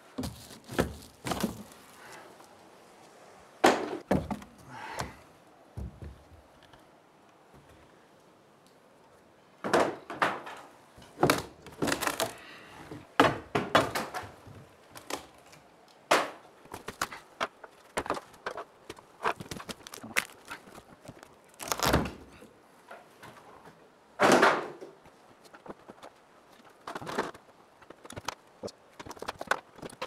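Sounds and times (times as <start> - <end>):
wood knocking and cracking: 0.1 - 1.8, 3.6 - 5.2, 5.8 - 6.8, 9.6 - 12.4, 13.0 - 22.4, 24.2 - 30.0
wooden boards crashing: 0.2 - 1.8, 3.6 - 5.2, 9.6 - 10.6, 13.2 - 14.4, 24.2 - 24.8.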